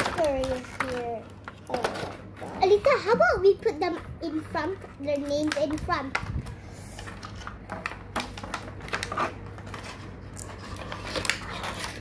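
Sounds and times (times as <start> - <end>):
plastic packaging crinkling: 0.0 - 2.3, 4.3 - 12.0.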